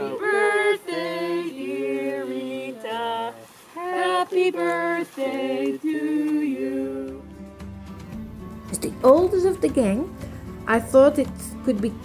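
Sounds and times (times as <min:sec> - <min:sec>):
group singing without instruments: 0:00.0 - 0:07.7.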